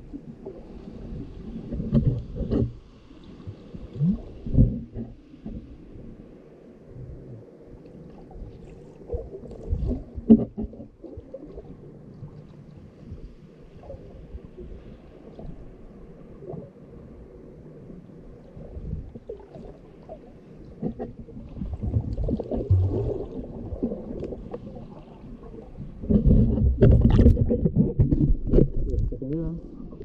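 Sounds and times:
muffled underwater water movement: 0.0s - 30.0s
underwater thumps: 9.8s - 10.9s, 26.0s - 29.4s.

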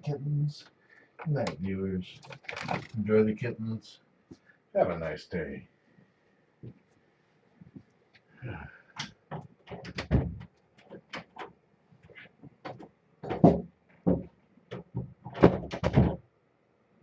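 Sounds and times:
door clicks knocks and thumps: 9.3s - 11.5s, 12.5s - 16.2s.

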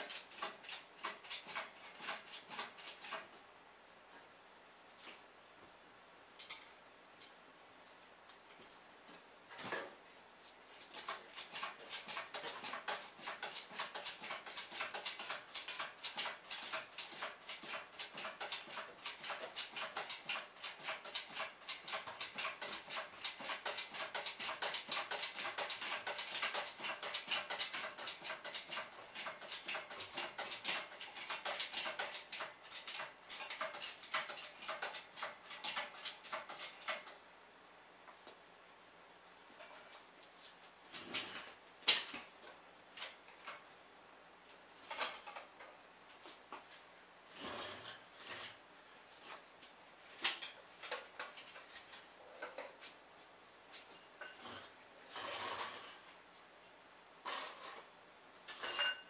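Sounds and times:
hoist clicking and creaking: 0.0s - 3.3s, 10.8s - 37.2s.

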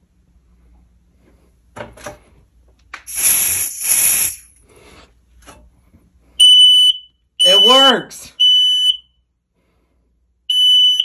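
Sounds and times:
aerosol can spraying: 3.0s - 4.6s.

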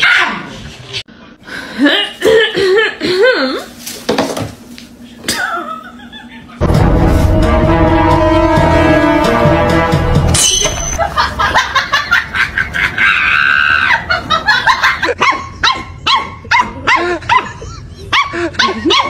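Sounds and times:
music: 6.6s - 10.9s.

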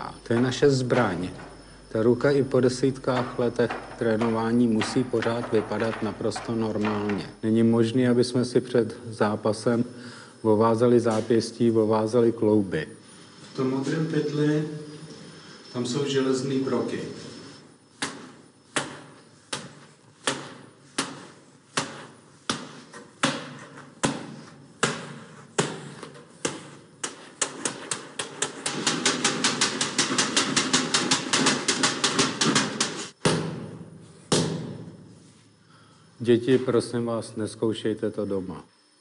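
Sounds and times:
hand striking a shot bag: 18.0s - 34.9s.

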